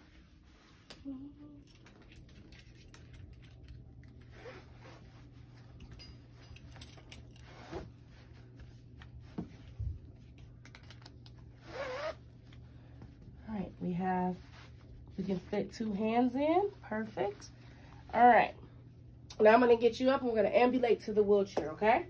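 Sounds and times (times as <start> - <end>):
webbing rustling through buckle: 1.6 - 13.6.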